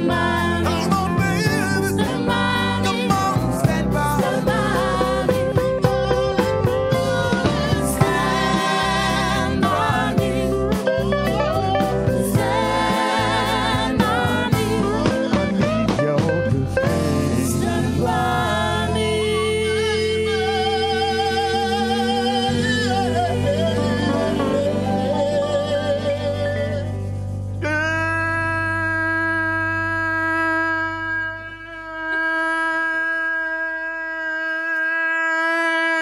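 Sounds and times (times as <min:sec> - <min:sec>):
several people singing: 0:00.0 - 0:16.0, 0:16.8 - 0:26.9
acoustic guitar: 0:00.0 - 0:30.1.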